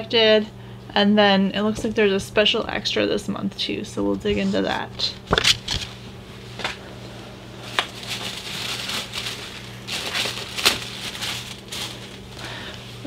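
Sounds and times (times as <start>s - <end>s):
tissue paper rustling: 7.6s - 13.0s.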